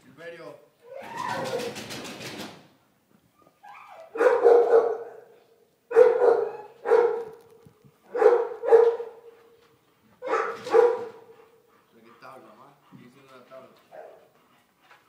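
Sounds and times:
dog barking loudly: 4.1s - 7.4s, 8.1s - 9.4s, 10.2s - 11.4s, 13.9s - 14.3s.

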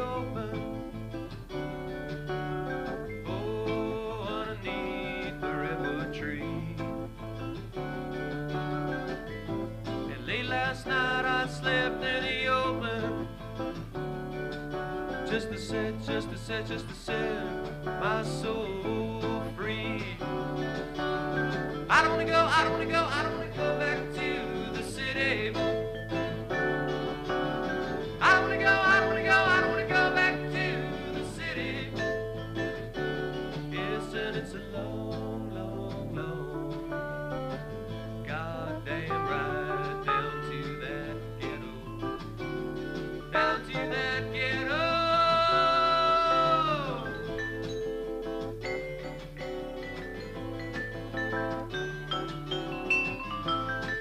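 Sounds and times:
man singing: 0.0s - 1.1s, 3.1s - 7.2s, 10.0s - 13.7s, 15.1s - 37.2s, 37.9s - 42.4s, 43.2s - 47.4s
bass line: 0.0s - 54.0s
strummed acoustic guitar: 0.0s - 54.0s.

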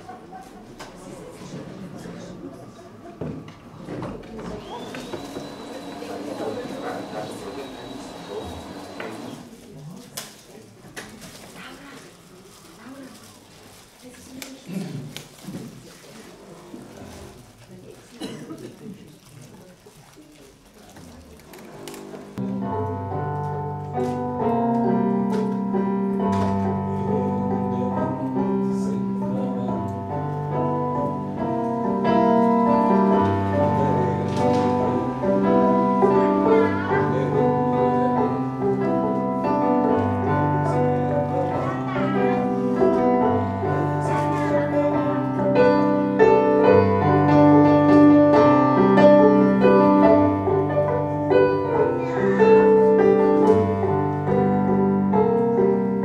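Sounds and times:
piano chords: 5.1s - 9.5s, 22.4s - 56.0s.

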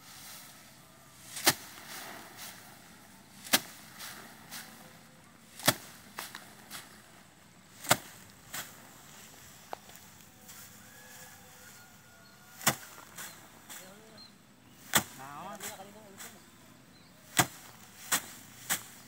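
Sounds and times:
rice sheaves beaten on rack: 1.2s - 7.1s, 7.7s - 9.2s, 12.6s - 13.4s, 14.8s - 16.4s, 17.3s - 19.0s.

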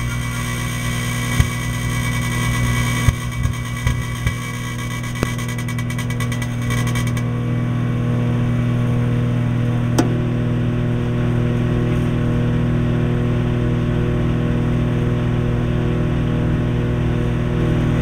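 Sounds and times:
high buzz: 0.0s - 8.8s
microwave oven humming: 0.0s - 18.0s.

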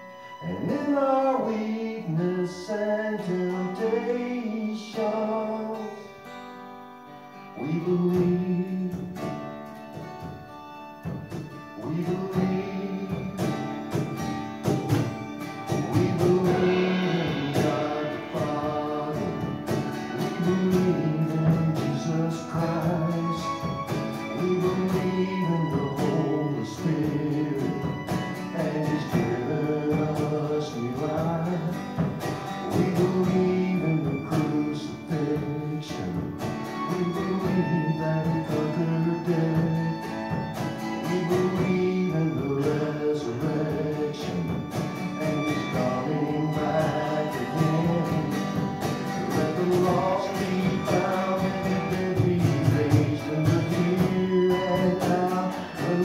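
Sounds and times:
guitar accompaniment: 0.0s - 56.0s
instrumental worship band: 0.0s - 56.0s.

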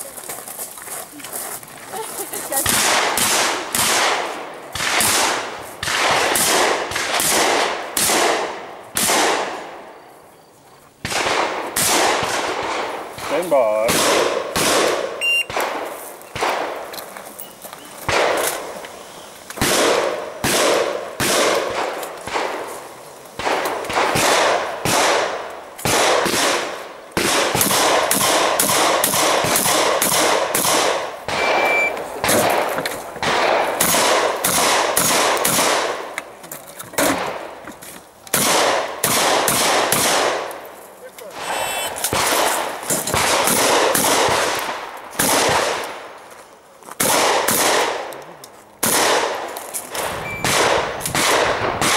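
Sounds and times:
shotgun shots echoing: 2.6s - 9.9s, 11.0s - 16.9s, 18.0s - 18.8s, 19.6s - 22.7s, 23.4s - 36.2s, 38.3s - 40.5s, 41.3s - 46.1s, 47.0s - 48.1s, 48.8s - 51.9s.

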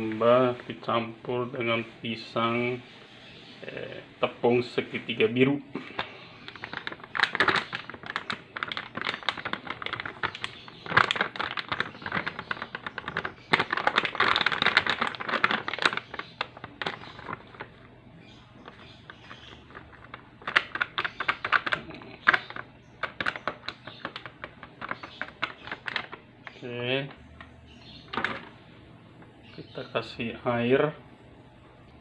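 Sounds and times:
plastic bag crinkling: 4.8s - 29.4s.

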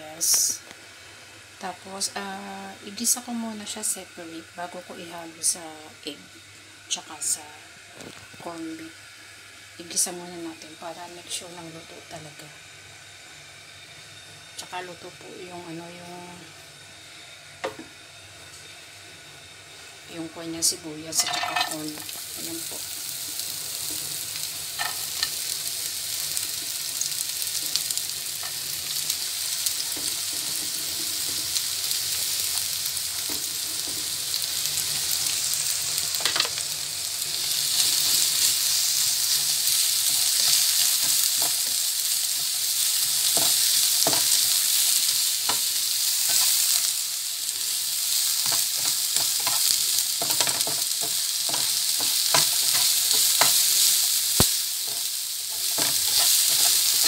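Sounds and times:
onion sizzling in hot oil: 0.0s - 57.0s
spatula scraping frying pan: 54.8s - 57.0s.

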